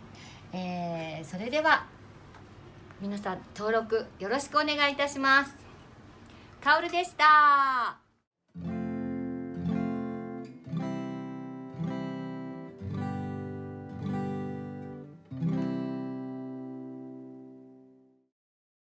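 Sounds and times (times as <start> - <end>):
acoustic guitar strumming: 8.5 - 17.9.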